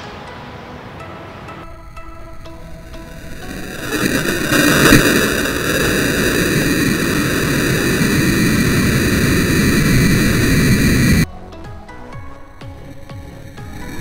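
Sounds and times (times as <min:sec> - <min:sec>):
rocket motor hissing: 0:02.3 - 0:11.3.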